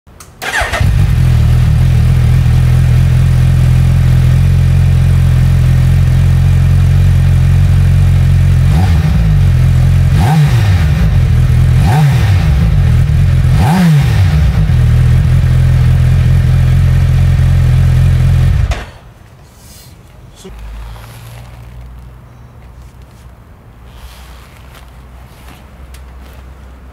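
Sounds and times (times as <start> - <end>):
motorcycle engine idling: 0.4 - 18.9
motorcycle throttle blips: 0.4 - 18.9.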